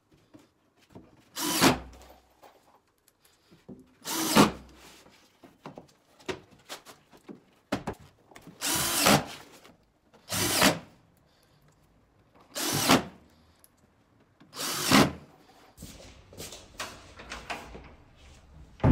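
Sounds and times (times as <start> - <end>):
cordless drill driving screws: 1.4 - 2.0, 4.0 - 4.6, 8.6 - 9.3, 10.3 - 10.8, 12.5 - 13.1, 14.5 - 15.2.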